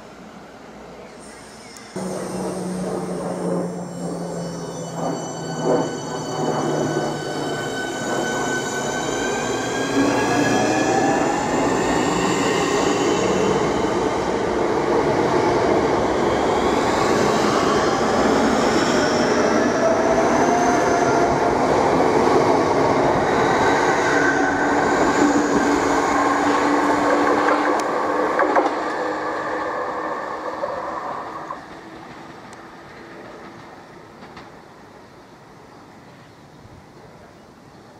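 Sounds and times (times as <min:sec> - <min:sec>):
train motor whine: 0:01.2 - 0:14.1
wheels on rail: 0:01.6 - 0:34.6.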